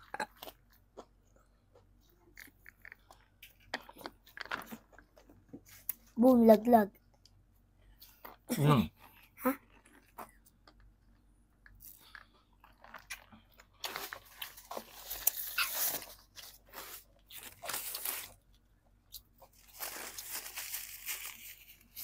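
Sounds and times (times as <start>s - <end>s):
crunchy food being chewed: 0.0s - 6.1s, 8.0s - 22.0s.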